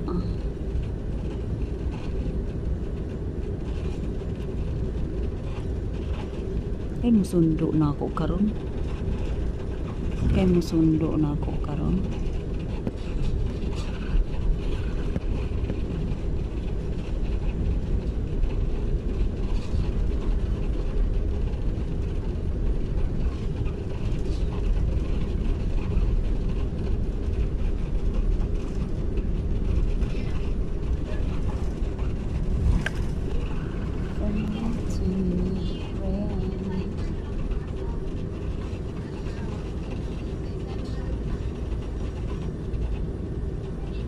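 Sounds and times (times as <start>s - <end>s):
jet engines idling: 0.0s - 44.0s
wheels rolling on concrete: 8.2s - 43.8s.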